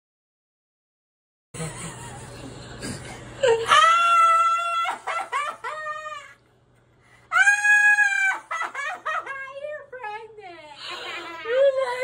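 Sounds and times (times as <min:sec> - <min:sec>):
woman shrieking and laughing: 0:03.4 - 0:06.4, 0:07.3 - 0:09.3
woman screaming: 0:03.6 - 0:05.1, 0:07.3 - 0:08.6.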